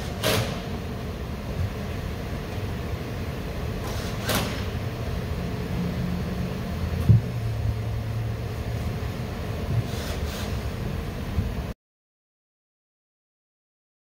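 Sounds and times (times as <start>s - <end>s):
low steady hum: 4.6s - 9.9s.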